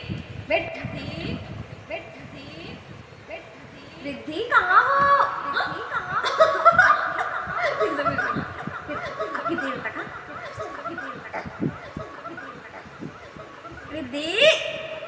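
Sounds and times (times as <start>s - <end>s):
giggling laughter: 4.6s - 14.8s.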